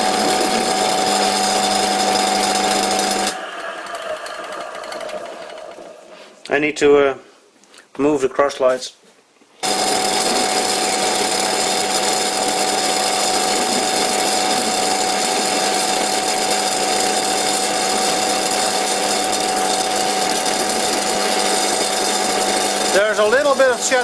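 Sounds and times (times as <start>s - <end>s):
metal lathe running with whine: 0.0s - 6.5s, 9.6s - 24.0s.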